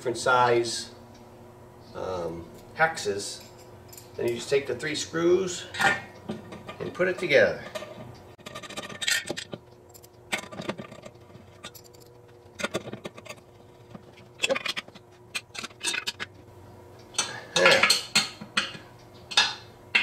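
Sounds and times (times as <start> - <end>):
allen wrench clinking on metal: 8.5 - 13.4.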